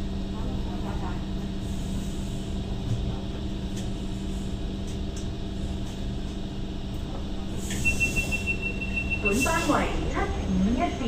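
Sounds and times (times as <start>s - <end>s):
train interior hum and rumble: 0.0s - 11.0s
steady high door beep: 7.7s - 9.7s.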